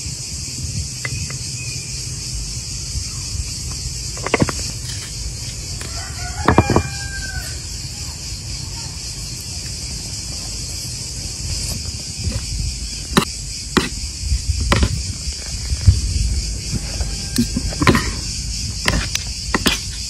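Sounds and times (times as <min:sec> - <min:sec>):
high insect buzz: 0:00.0 - 0:20.0
rooster crowing: 0:05.8 - 0:08.2, 0:16.8 - 0:18.3.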